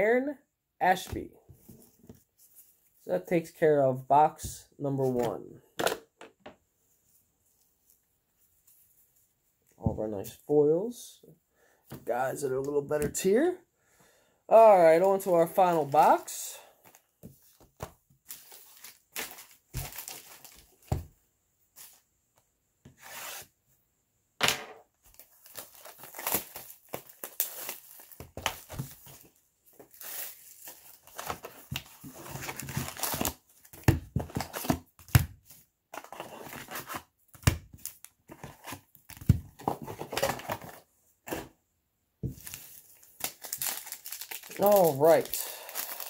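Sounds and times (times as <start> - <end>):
wrapping and foil tearing and crinkling: 18.3 - 20.8, 25.1 - 33.5, 42.4 - 46.0.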